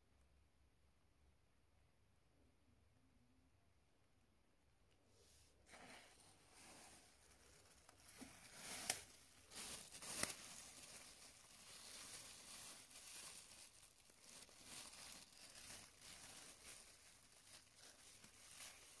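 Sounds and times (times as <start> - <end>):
faint rustling and crinkling: 4.9 - 19.0.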